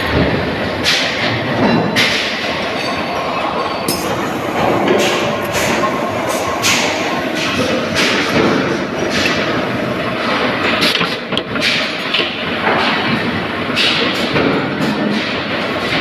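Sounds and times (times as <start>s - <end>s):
steady machinery din: 0.0s - 16.0s
power presses stamping metal: 3.8s - 16.0s.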